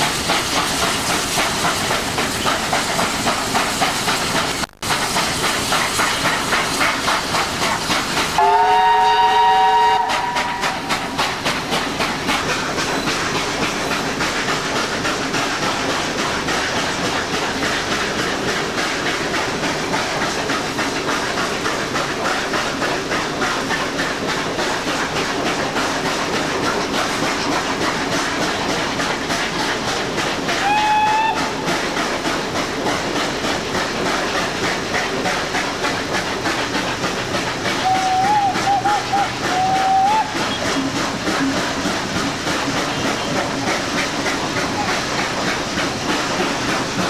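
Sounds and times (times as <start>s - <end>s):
train wheels on rails: 0.0s - 47.0s
steam locomotive whistle: 8.4s - 10.9s, 30.6s - 31.6s, 37.8s - 40.9s.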